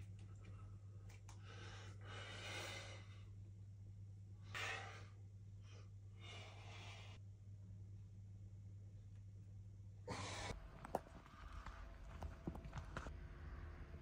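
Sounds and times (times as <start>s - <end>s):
faint low hum: 0.0s - 14.0s
man breathing hard: 1.4s - 3.4s, 4.5s - 7.2s.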